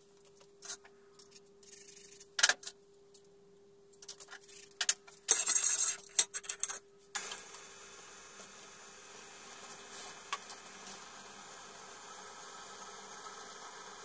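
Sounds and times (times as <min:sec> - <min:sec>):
metal parts clinking and rattling: 0:04.0 - 0:06.8
motor hiss: 0:07.2 - 0:14.0.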